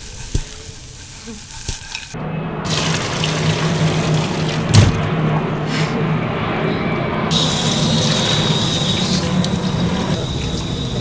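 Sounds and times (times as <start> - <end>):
water pouring into steel sink: 2.7 - 4.7, 7.3 - 11.0.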